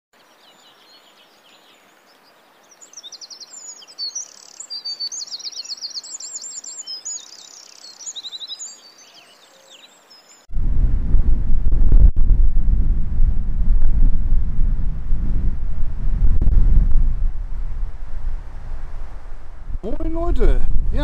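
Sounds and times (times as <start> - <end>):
songbirds chirping and trilling: 0.2 - 10.5
wind rumbling on microphone: 10.5 - 21.0.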